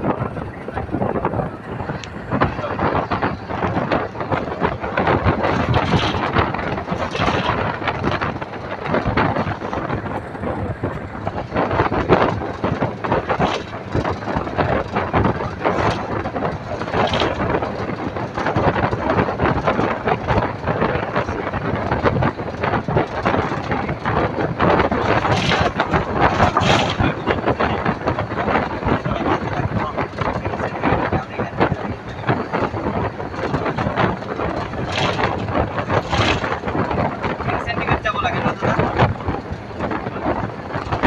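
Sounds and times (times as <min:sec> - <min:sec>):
rattles and knocks: 0:00.0 - 0:41.0
road and wind noise: 0:00.0 - 0:41.0.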